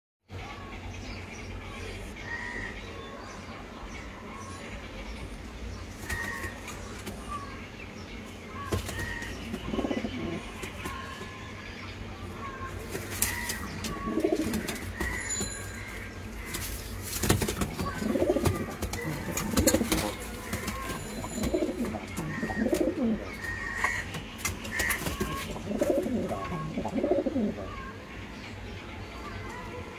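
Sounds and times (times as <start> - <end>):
pigeons cooing: 8.6 - 11.4, 12.4 - 15.2, 17.4 - 27.9.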